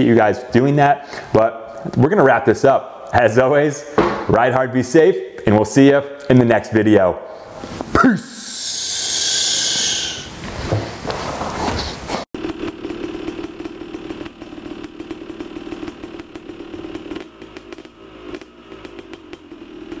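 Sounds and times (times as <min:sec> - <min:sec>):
hiss: 0:07.5 - 0:11.0
footsteps: 0:10.4 - 0:12.3
motorcycle engine idling: 0:12.4 - 0:20.0.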